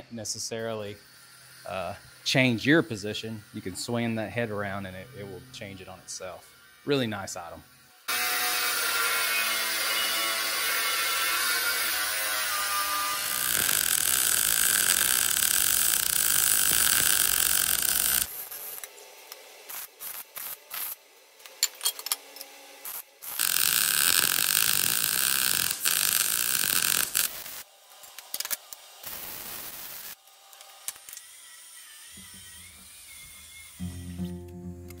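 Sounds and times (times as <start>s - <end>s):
angle grinder grinding steel: 0.3s - 28.5s, 29.8s - 35.0s
welder crackling: 10.3s - 21.0s, 22.8s - 27.7s, 28.3s - 30.2s.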